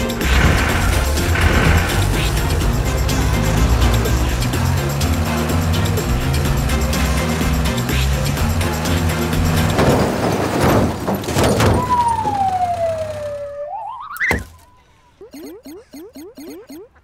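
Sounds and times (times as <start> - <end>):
loud noisy sound effect: 0.0 - 7.5
cartoon whistle sliding down: 11.7 - 16.8
short rising chirps: 12.0 - 17.0
cartoon thump: 14.2 - 14.6.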